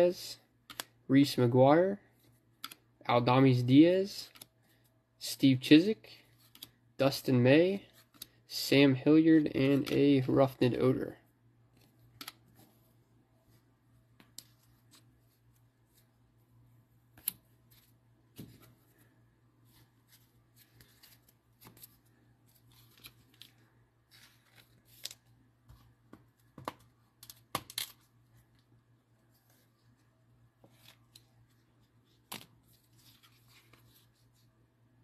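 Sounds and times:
cards and packaging handled: 17.0 - 34.6.

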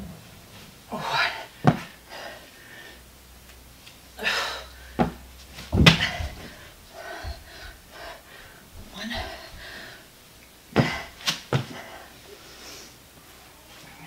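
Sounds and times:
hard breathing: 0.9 - 3.1, 4.2 - 5.2, 5.9 - 13.4
dumbbell thuds on floor: 5.0 - 6.6, 10.8 - 11.8.

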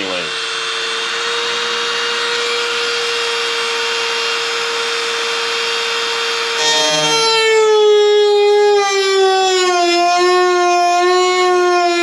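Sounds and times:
cutting wheel grinding metal: 0.0 - 7.7
rotary tool whining: 0.0 - 9.3.

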